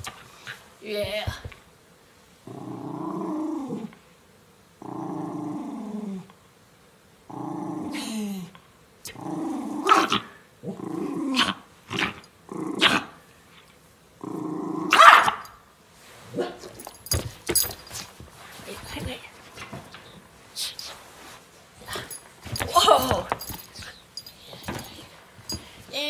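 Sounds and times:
dog growling: 2.4s - 3.9s, 4.8s - 6.2s, 7.3s - 8.0s, 9.2s - 13.2s, 14.2s - 15.0s
dog barking: 14.9s - 15.5s.

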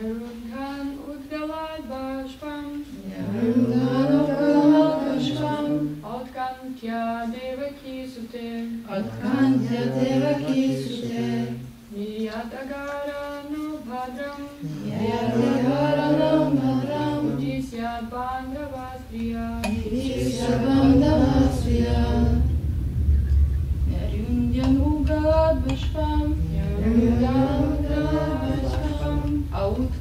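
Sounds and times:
group chanting a slow melody: 0.0s - 30.0s
low rumble: 14.6s - 30.0s.

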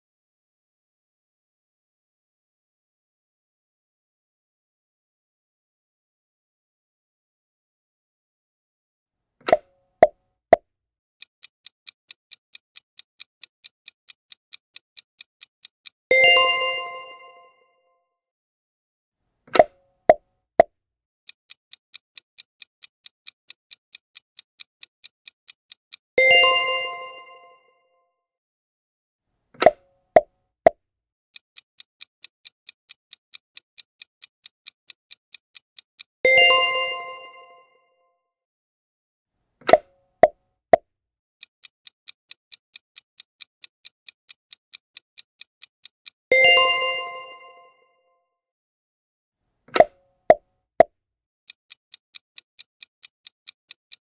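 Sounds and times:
clock-like timer ticks: 11.2s - 17.3s, 19.5s - 20.2s, 21.2s - 27.4s, 29.6s - 37.4s, 39.6s - 39.9s, 41.4s - 47.5s, 49.7s - 50.9s, 51.5s - 54.0s
bright bell ding: 16.3s - 17.5s.

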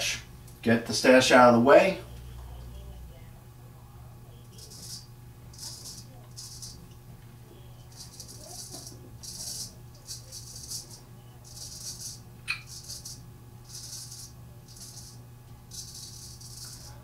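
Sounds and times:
razor scraping stubble: 4.5s - 7.0s, 7.8s - 17.0s.

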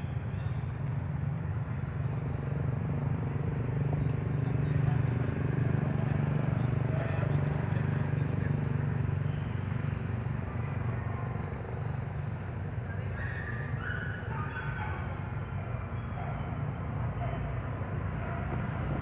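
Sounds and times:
faint voices: 4.4s - 19.0s.

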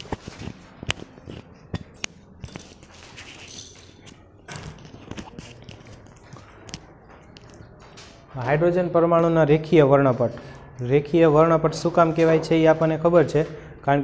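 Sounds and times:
clip-on microphone rustling: 0.0s - 8.3s
footsteps: 0.0s - 13.7s.

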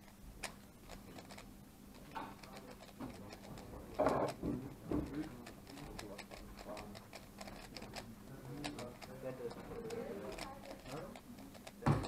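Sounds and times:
muffled knocks: 3.0s - 5.4s
puzzle cube plastic clicks: 5.4s - 9.1s.

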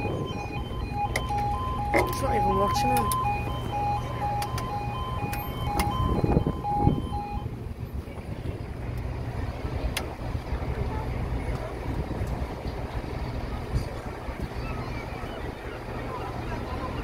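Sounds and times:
wind rumble on microphone: 0.0s - 3.4s, 4.6s - 17.0s
level crossing alarm two tones: 0.0s - 7.5s.

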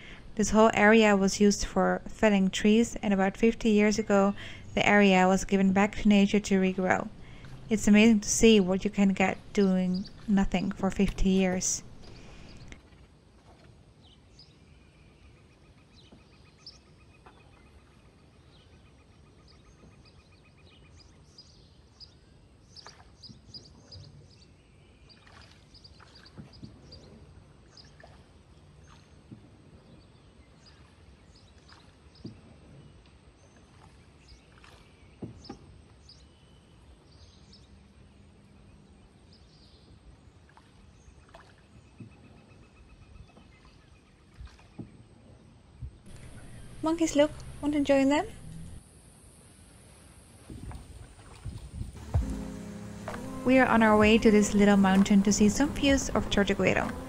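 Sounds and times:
low steady rumble: 0.0s - 12.8s, 46.1s - 49.0s, 51.8s - 57.0s.

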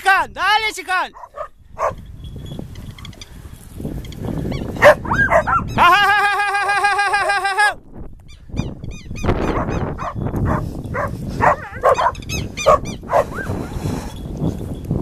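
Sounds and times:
animal yelps and chirps: 4.5s - 5.8s, 9.4s - 13.6s.

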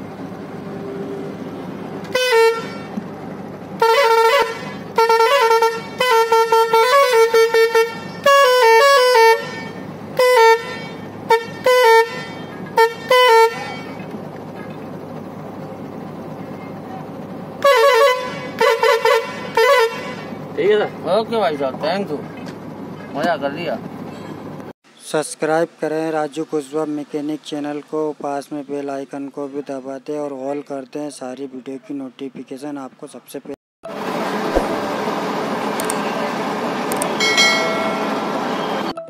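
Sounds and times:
musical truck horn tune: 2.1s - 3.0s, 3.8s - 14.1s, 17.6s - 20.5s.

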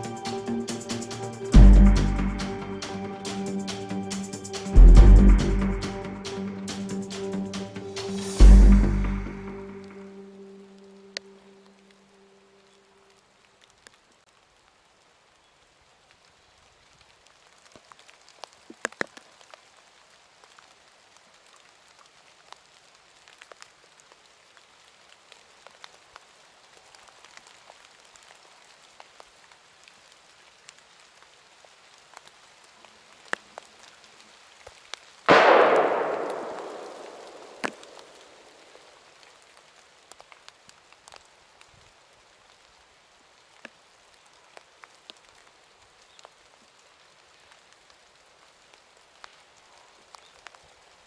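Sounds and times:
faint ticks and snaps: 16.9s - 19.8s, 20.4s - 35.2s, 36.8s - 41.9s, 43.4s - 50.8s
rifle shot echoing: 35.3s - 38.6s.

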